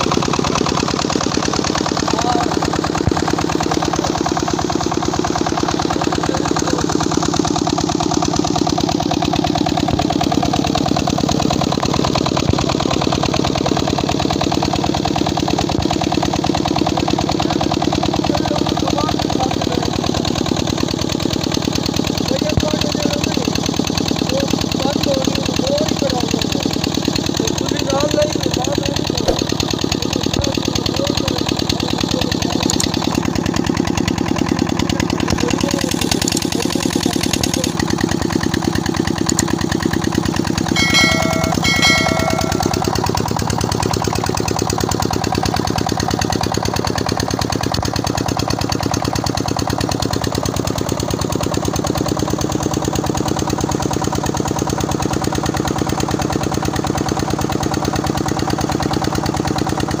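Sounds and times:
diesel pump engine running: 0.0s - 60.0s
short pitched tones: 40.8s - 43.1s.

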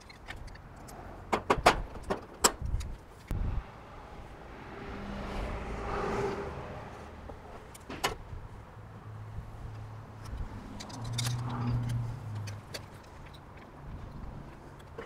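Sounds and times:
low engine hum: 3.2s - 14.8s.

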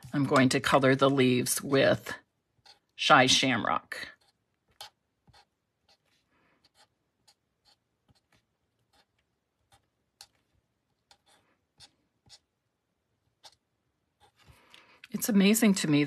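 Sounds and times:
marker scratching on card: 2.6s - 2.9s, 4.1s - 12.5s, 13.3s - 13.6s, 14.2s - 14.6s.

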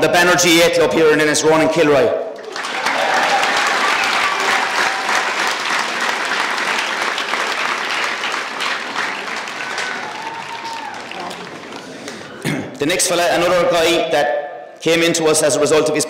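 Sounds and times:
crowd applauding: 2.4s - 12.5s.

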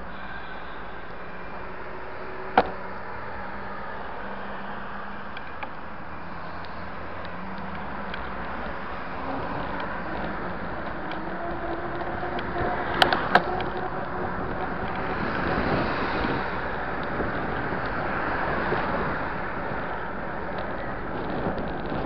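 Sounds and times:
passing cars: 0.0s - 22.0s
road noise: 0.0s - 22.0s
sharp knocks: 2.6s - 2.8s
wind rush: 6.2s - 22.0s.

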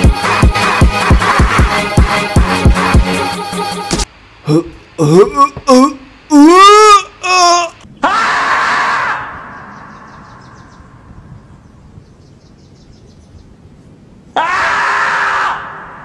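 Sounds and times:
marmot screaming: 6.3s - 10.8s, 14.4s - 16.0s.

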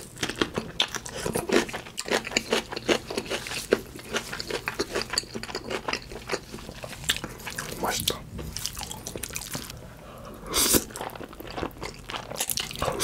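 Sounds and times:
wet chewing and lip smacking: 10.6s - 13.0s.

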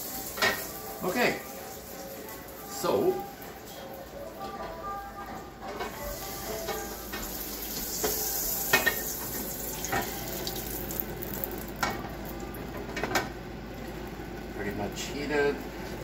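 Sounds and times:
butter sizzling in a frying pan: 0.0s - 2.8s, 6.1s - 12.3s.

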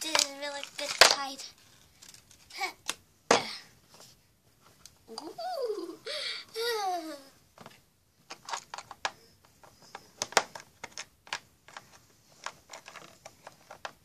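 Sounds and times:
plastic toy pieces clicking: 0.0s - 1.4s.

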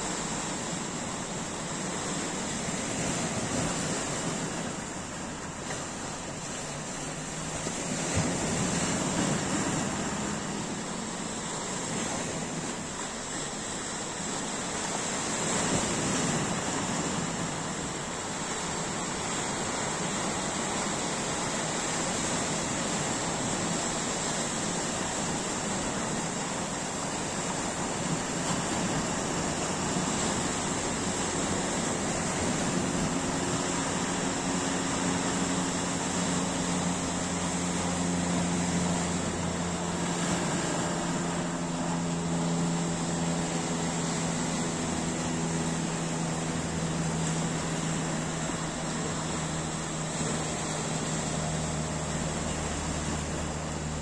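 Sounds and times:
waves splashing on rocks: 0.0s - 54.0s
engine humming: 25.7s - 54.0s.

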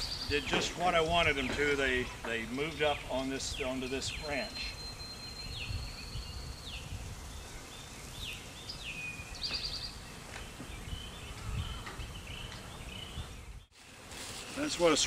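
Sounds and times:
birds chirping: 0.0s - 15.0s
bird trill: 1.4s - 10.2s.

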